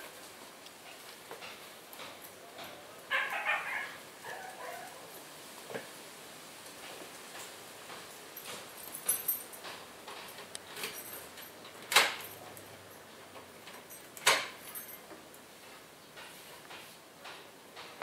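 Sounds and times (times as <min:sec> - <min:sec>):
keys jangling: 0:08.4 - 0:15.1
key turning in door lock: 0:09.1 - 0:12.7, 0:13.5 - 0:15.1
loud sharp lock clunks: 0:11.8 - 0:12.4.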